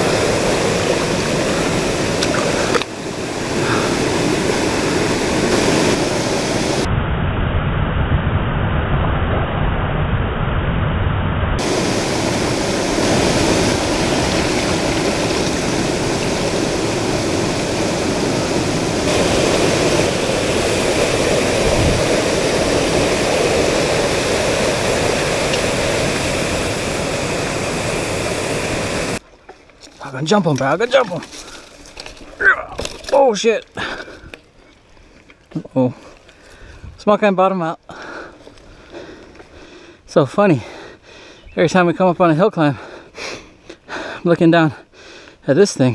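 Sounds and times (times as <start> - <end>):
waterfall and stream rushing: 0.0 - 6.9, 11.6 - 29.2, 29.9 - 34.3.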